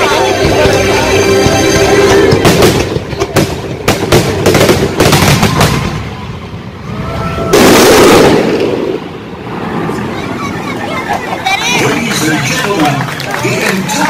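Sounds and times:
fireworks rumble: 0:00.0 - 0:14.0
loud dense noise: 0:00.0 - 0:14.0
fireworks bangs: 0:01.4 - 0:06.8, 0:07.5 - 0:10.4.

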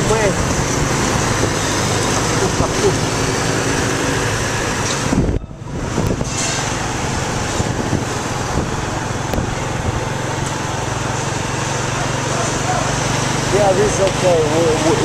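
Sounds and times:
road noise: 0:00.0 - 0:15.0
wind rush: 0:05.0 - 0:06.4, 0:07.2 - 0:09.5.

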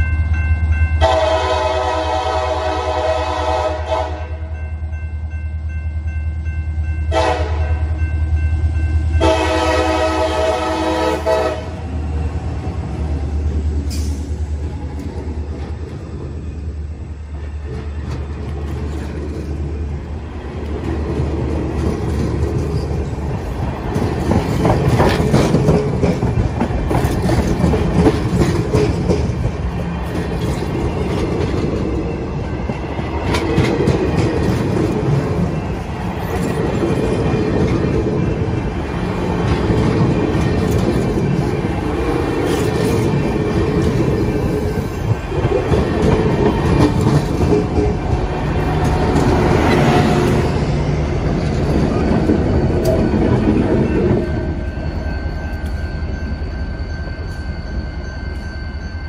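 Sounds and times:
locomotive horn blasts: 0:01.0 - 0:04.6, 0:07.1 - 0:08.0, 0:09.2 - 0:11.8
train wheels clattering over joints: 0:20.7 - 0:54.5.

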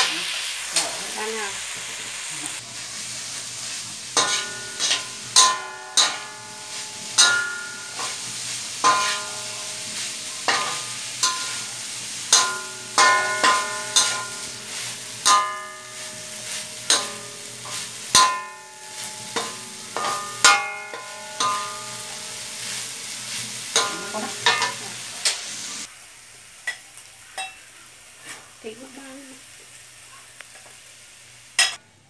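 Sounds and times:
food sizzling: 0:00.0 - 0:31.8
metal spatula scraping a wok: 0:02.5 - 0:25.8.

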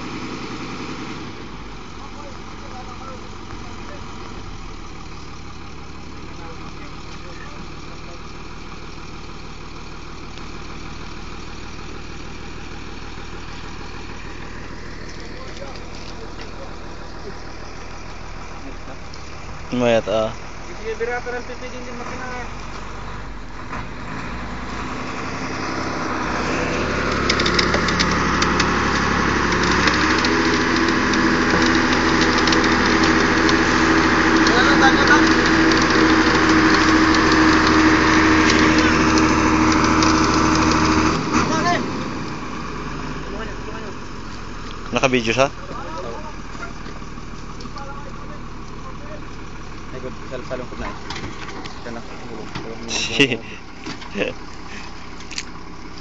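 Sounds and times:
vehicle engine running: 0:00.0 - 0:56.0
sharp clicks: 0:27.0 - 0:34.6.

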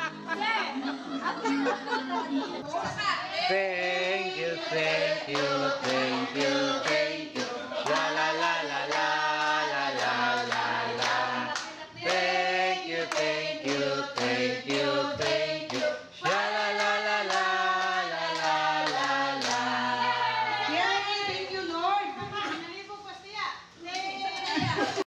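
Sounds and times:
women singing together: 0:00.0 - 0:22.5, 0:23.9 - 0:25.0
rhythmic hand clapping: 0:03.8 - 0:21.0.

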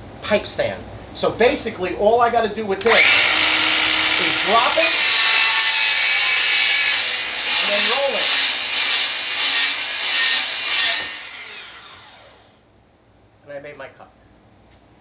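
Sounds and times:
miter saw cutting plastic pipe: 0:02.8 - 0:12.5.

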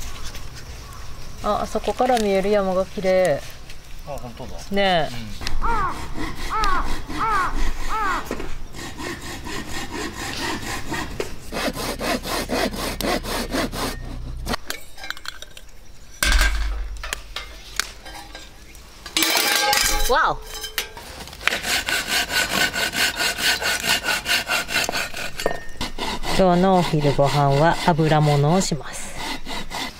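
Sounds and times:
rasping strokes: 0:21.0 - 0:29.9.

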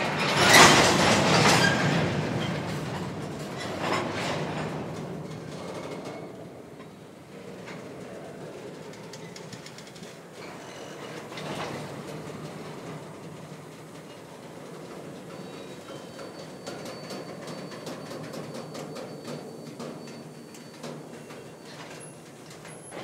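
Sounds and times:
train wheels rumbling on rail: 0:00.0 - 0:23.0
wheels clicking over track: 0:00.0 - 0:23.0
faint high wheel squeal: 0:07.7 - 0:12.0, 0:13.8 - 0:23.0.

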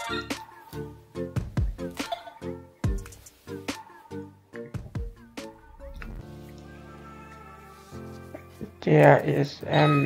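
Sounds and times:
synth music with deep beat: 0:00.0 - 0:07.5.

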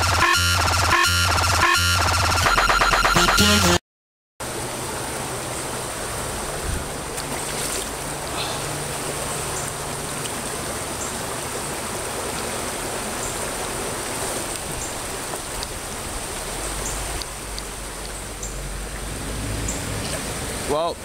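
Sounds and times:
creek water flowing: 0:04.4 - 0:21.0.

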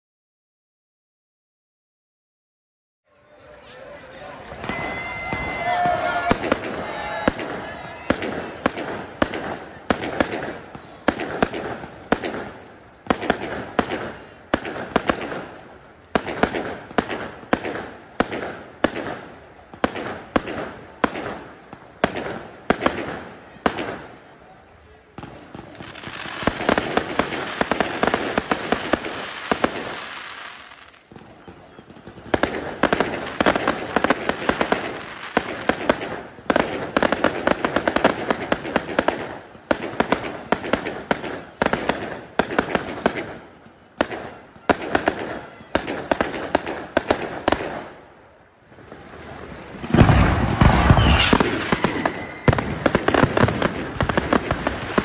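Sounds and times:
fireworks crackling and popping: 0:03.2 - 0:55.0
high falling whistle: 0:04.6 - 0:07.2, 0:50.1 - 0:54.0
heavy deep firework boom: 0:49.7 - 0:54.9.

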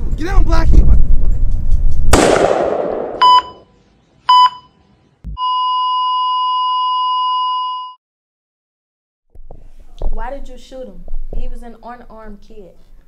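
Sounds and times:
gunshot: 0:02.1 - 0:03.4
heart monitor beeps: 0:03.2 - 0:03.7, 0:04.3 - 0:04.8, 0:05.4 - 0:08.0
heart monitor flatline tone: 0:03.2 - 0:03.7, 0:05.3 - 0:08.0.

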